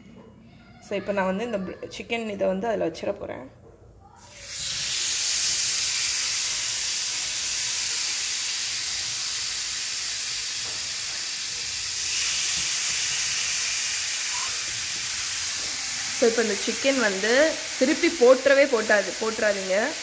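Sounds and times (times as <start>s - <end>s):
chicken sizzling on grill pan: 4.2s - 20.0s.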